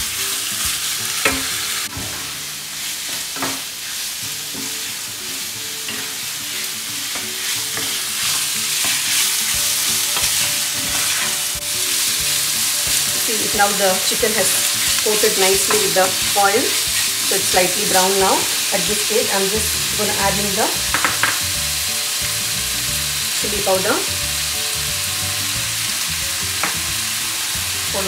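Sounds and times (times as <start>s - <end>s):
chicken sizzling in oil: 0.0s - 28.0s
wooden spatula scraping and knocking: 10.2s - 11.4s.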